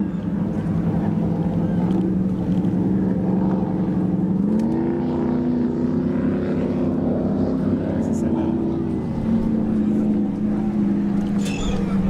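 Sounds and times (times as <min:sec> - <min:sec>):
powerboat engines droning: 0:00.0 - 0:12.0.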